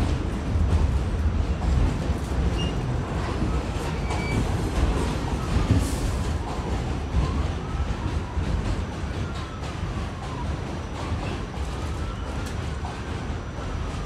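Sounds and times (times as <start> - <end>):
subway car rumbling on track: 0.0 - 14.0.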